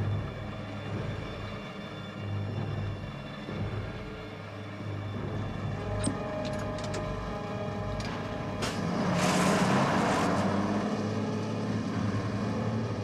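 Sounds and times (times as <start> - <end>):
heavy truck engine drone: 0.0 - 13.0
truck passing with tyre noise: 7.0 - 13.0.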